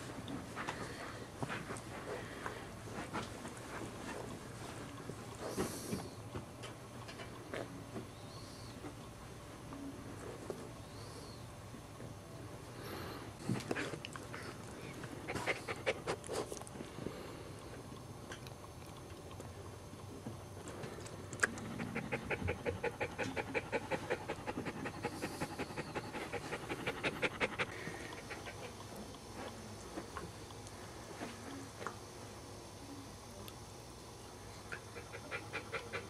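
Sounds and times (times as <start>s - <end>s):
dog panting: 15.2s - 16.6s, 21.5s - 29.6s, 34.7s - 36.0s.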